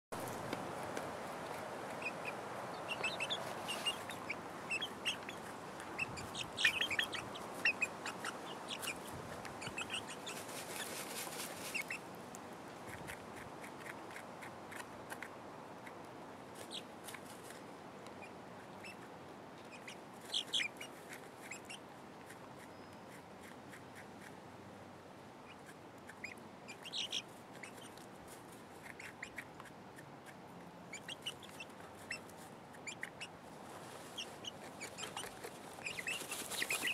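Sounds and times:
hens clucking and chirping: 0:00.2 - 0:12.1, 0:16.6 - 0:17.2, 0:18.2 - 0:21.8, 0:25.4 - 0:28.1, 0:28.8 - 0:33.4, 0:34.0 - 0:36.9.

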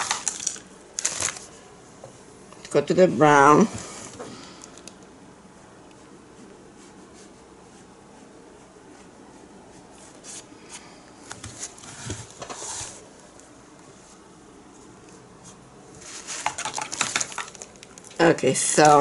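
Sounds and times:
faint room hiss: 0:00.0 - 0:19.0
scraping rustle: 0:11.4 - 0:13.1, 0:15.4 - 0:16.6.

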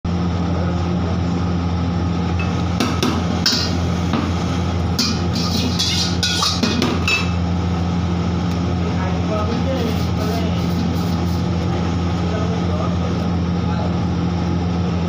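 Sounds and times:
gas burner humming: 0:00.1 - 0:15.0
oil heating in wok: 0:00.1 - 0:15.0
metal ladle scraping wok: 0:05.0 - 0:07.4, 0:09.8 - 0:11.5.

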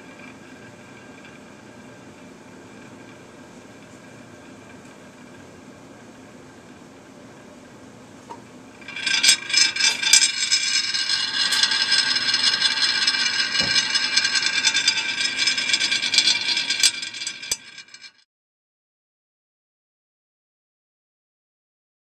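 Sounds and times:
glass spinning top grating scrape: 0:08.8 - 0:18.2.

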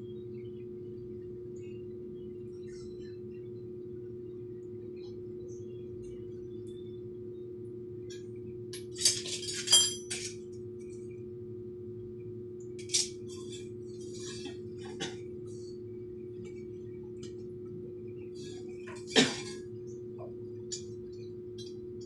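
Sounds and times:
steady low hum: 0:00.0 - 0:22.0
metal parts clinking: 0:08.8 - 0:10.4.

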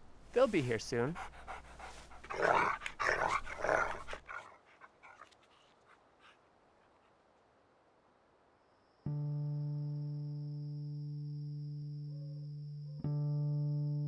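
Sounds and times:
dog vocalizing: 0:01.2 - 0:06.4
faint clicks: 0:02.8 - 0:04.3, 0:05.1 - 0:05.9.

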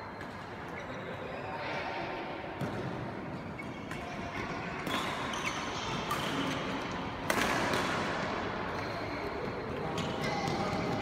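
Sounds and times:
rackets hitting shuttlecock: 0:02.6 - 0:11.0.

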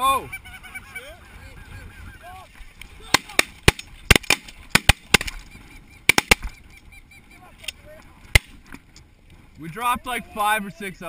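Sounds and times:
shotgun shots: 0:03.1 - 0:05.4, 0:06.1 - 0:06.5
faint goose calls: 0:05.3 - 0:08.2.

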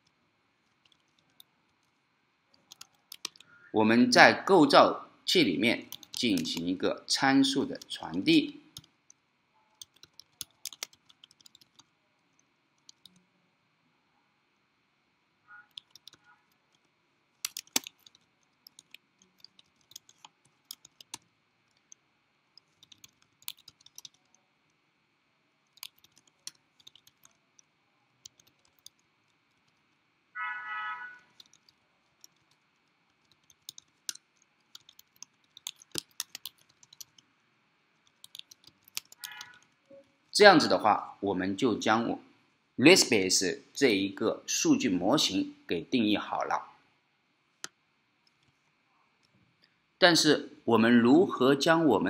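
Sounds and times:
keyboard typing: 0:00.0 - 0:03.5, 0:05.8 - 0:06.8, 0:07.4 - 0:13.2, 0:15.6 - 0:24.4, 0:25.6 - 0:30.0, 0:31.1 - 0:37.3, 0:38.0 - 0:40.3.

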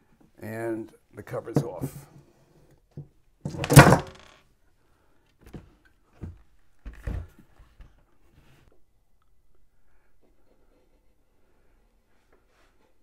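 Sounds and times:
cover thunking on wooden bench: 0:03.5 - 0:04.2.

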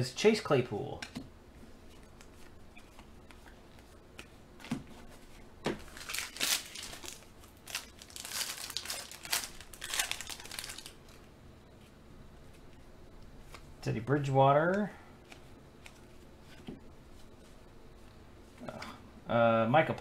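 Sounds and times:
foil wrapper crinkling and tearing: 0:05.9 - 0:11.1.

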